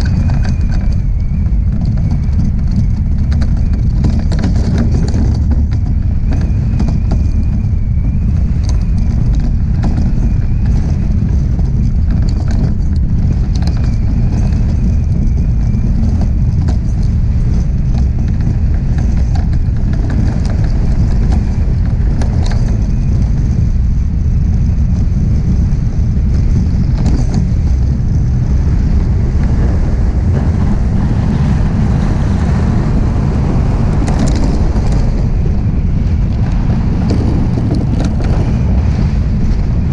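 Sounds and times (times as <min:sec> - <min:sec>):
scattered clicks and ticks: 0:00.0 - 0:30.8
iceboat runners rumbling over ice: 0:00.0 - 0:39.9
wind buffeting microphone: 0:00.0 - 0:39.9.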